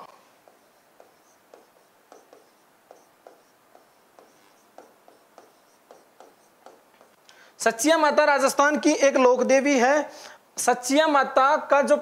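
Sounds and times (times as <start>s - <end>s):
pen writing on a board: 0.3s - 7.2s.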